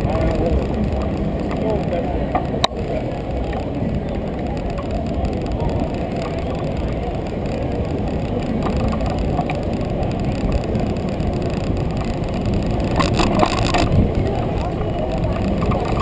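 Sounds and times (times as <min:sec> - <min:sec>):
road noise: 0:00.0 - 0:16.0
street traffic: 0:00.0 - 0:16.0
wind rumble on microphone: 0:00.0 - 0:16.0
sharp rattling clicks: 0:04.3 - 0:16.0.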